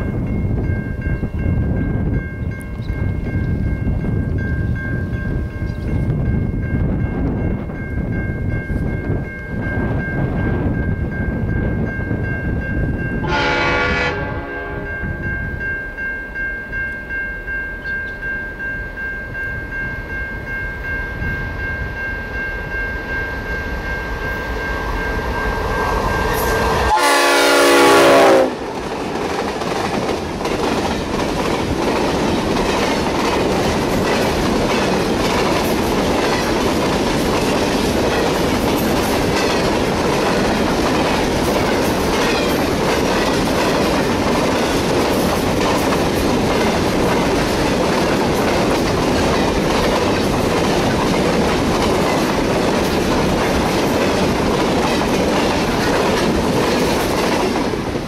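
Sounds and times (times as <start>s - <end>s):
diesel locomotives approaching: 0.0s - 58.0s
train horn blast: 13.2s - 15.2s, 25.3s - 28.7s.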